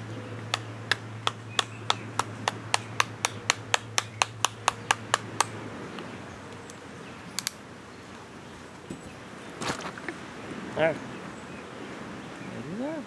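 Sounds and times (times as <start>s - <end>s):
knife tapping coconut shell: 0.5s - 5.5s.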